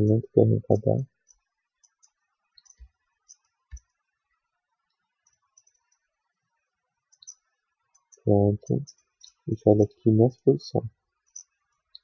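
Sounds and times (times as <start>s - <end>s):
mouse and keyboard clicks: 7.1s - 7.4s.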